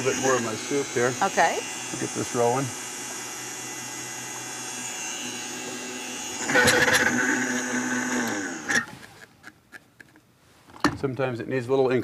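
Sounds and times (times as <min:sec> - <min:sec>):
blender motor running: 0:00.0 - 0:08.9.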